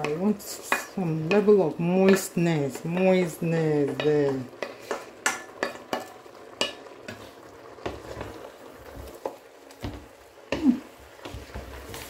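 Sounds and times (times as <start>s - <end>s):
wooden spoon stirring in pot: 0.0s - 12.0s.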